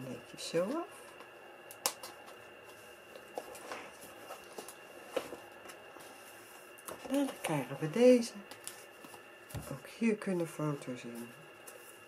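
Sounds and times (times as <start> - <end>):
paper pages being handled: 1.9 - 7.6, 8.5 - 9.8.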